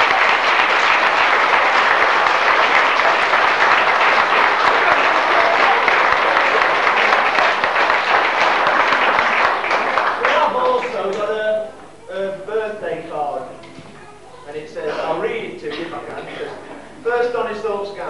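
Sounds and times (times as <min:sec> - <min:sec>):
crowd applauding: 0:00.0 - 0:11.4.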